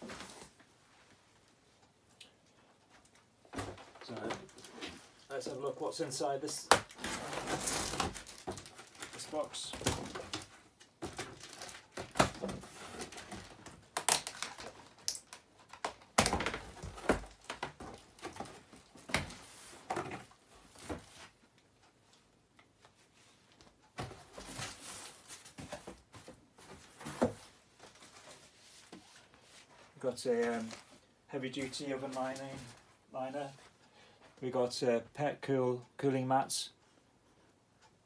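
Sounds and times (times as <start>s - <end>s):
cardboard box being unpacked: 6.9s - 15.0s.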